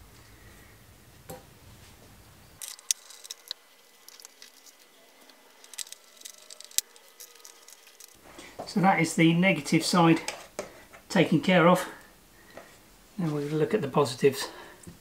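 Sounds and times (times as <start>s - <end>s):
wire terminal clicking and rustling: 2.6s - 8.2s.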